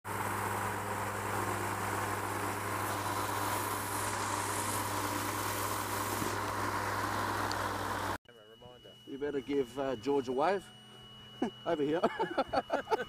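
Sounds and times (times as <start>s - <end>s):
propeller engine humming: 0.0s - 8.2s, 8.8s - 13.0s.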